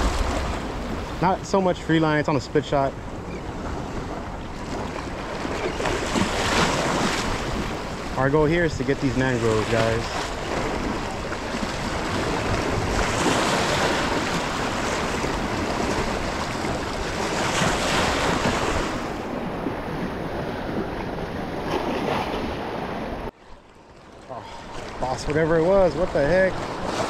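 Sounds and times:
waves washing against rocks: 0:00.0 - 0:03.0, 0:04.6 - 0:23.1
wind buffeting microphone: 0:00.0 - 0:23.3.

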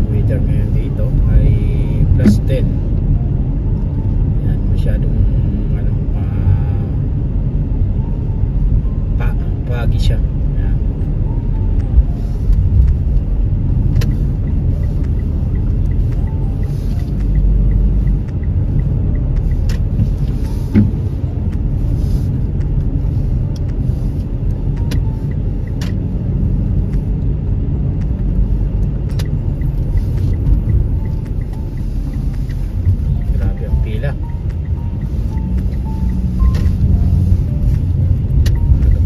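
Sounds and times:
car road noise rumble: 0:00.0 - 0:39.0
faint regular ticking: 0:10.8 - 0:39.0
windshield wiper sweep: 0:11.4 - 0:27.1, 0:27.9 - 0:39.0.

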